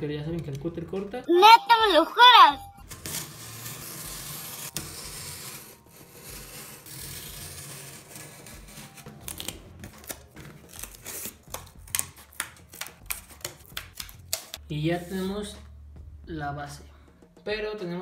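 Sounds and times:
knife cutting cardboard: 2.9s - 14.5s.

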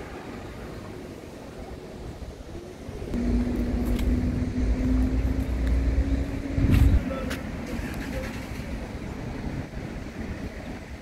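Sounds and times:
car engine rumbling: 3.1s - 9.8s.

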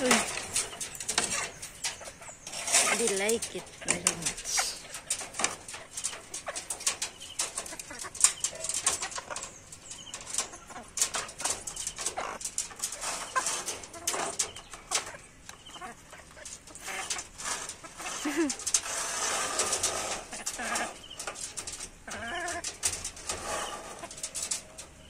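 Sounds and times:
beaks tapping on wire mesh: 0.0s - 25.0s
chickens clucking: 0.0s - 25.0s.

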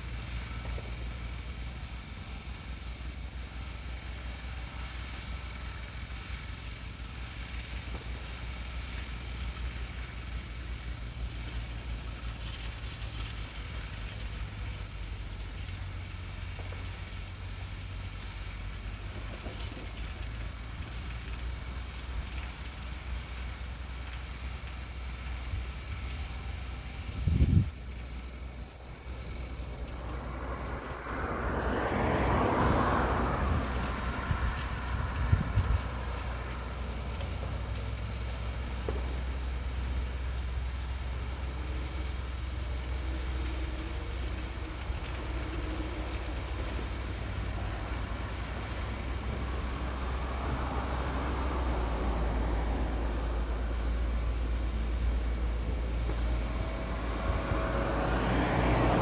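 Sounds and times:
open-air rumble: 0.0s - 59.0s
vehicle passing: 26.0s - 40.2s, 41.6s - 59.0s.

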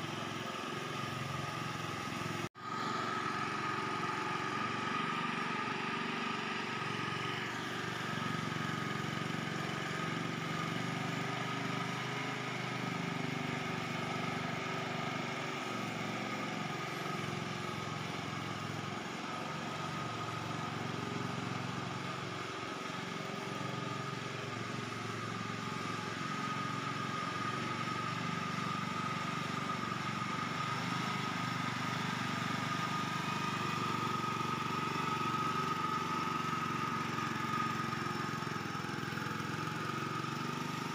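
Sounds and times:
small engine running under load: 0.0s - 40.9s.

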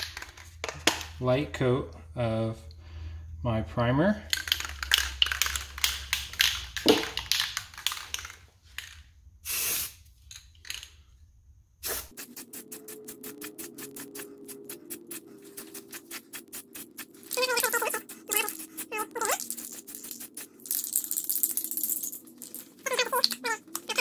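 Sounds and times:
spray can ball rattling: 0.0s - 1.1s, 4.3s - 11.0s, 11.8s - 24.0s
spray hiss: 9.4s - 10.0s, 11.8s - 22.1s.

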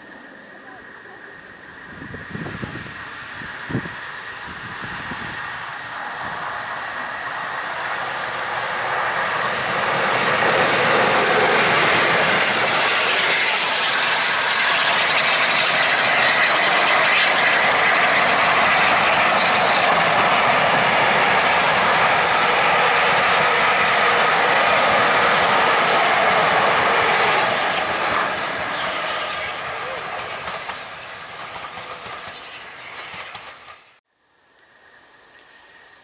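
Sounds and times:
steam locomotive passing: 0.0s - 36.0s
wheels clattering on rails: 6.2s - 34.0s.

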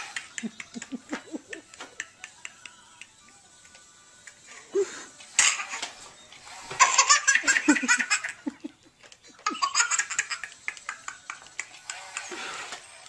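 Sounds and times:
baby laughing hysterically: 6.8s - 8.7s, 9.3s - 12.2s.

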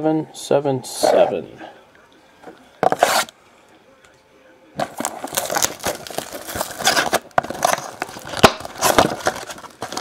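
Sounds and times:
plastic wrap and cardboard crinkling: 4.8s - 10.0s.

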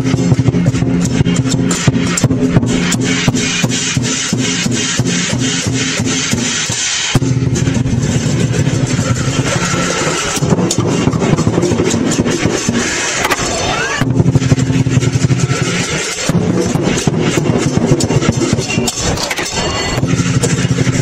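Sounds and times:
drum cymbals and gong percussion: 0.0s - 21.0s
low ringing tone: 7.2s - 11.2s.

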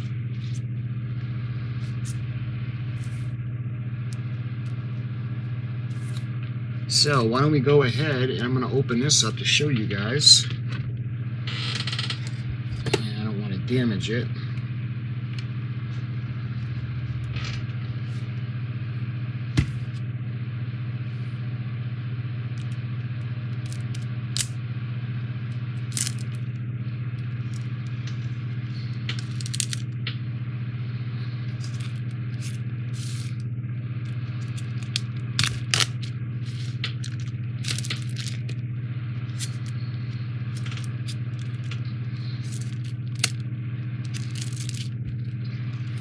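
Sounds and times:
steady low hum: 0.0s - 46.0s
plastic wrap crackling: 25.9s - 26.4s, 29.0s - 29.9s, 34.1s - 38.6s, 40.5s - 41.8s, 42.4s - 43.4s, 44.0s - 45.1s.

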